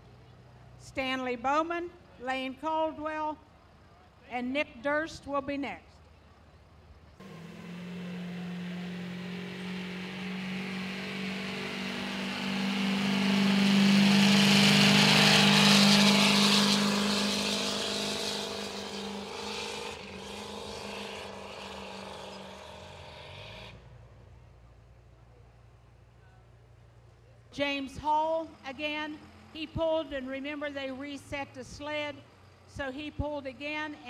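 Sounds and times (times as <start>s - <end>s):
diesel truck engine under load: 7.2s - 24.2s, 28.1s - 33.3s.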